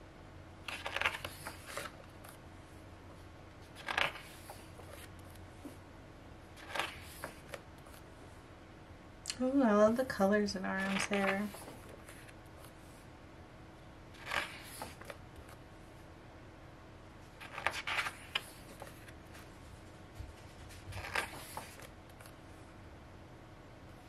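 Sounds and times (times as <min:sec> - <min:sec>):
paper pages rustling: 0:00.6 - 0:02.4, 0:03.5 - 0:05.8, 0:06.6 - 0:08.1, 0:10.8 - 0:13.0, 0:14.1 - 0:15.6, 0:17.2 - 0:22.5.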